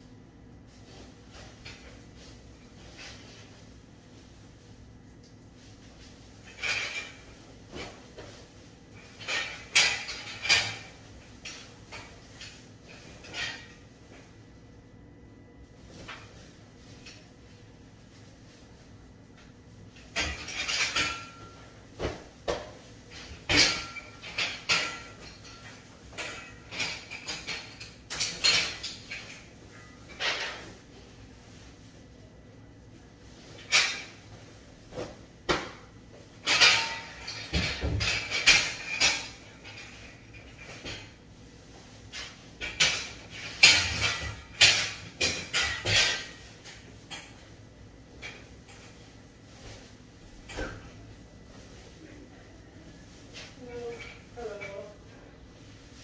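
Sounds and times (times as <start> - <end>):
metal trolleys clattering: 5.6 - 14.3, 20.0 - 22.3, 23.1 - 31.7, 33.4 - 35.2, 36.2 - 52.0, 53.1 - 55.1
trolleys knocking and bumping: 33.4 - 41.2, 42.1 - 47.4.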